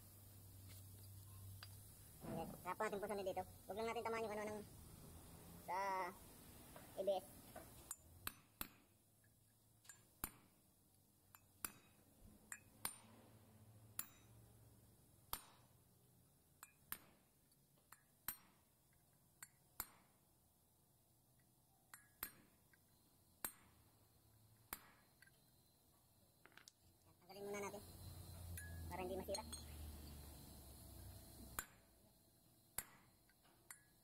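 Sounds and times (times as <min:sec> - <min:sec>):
hammer tapping steel punch: 0:07.9 - 0:08.9, 0:11.3 - 0:13.2, 0:14.0 - 0:14.4, 0:15.3 - 0:15.7, 0:16.6 - 0:17.2, 0:17.9 - 0:18.7, 0:19.4 - 0:20.2, 0:21.9 - 0:22.8, 0:23.4 - 0:23.9, 0:24.7 - 0:25.4, 0:31.5 - 0:31.9, 0:32.7 - 0:34.0.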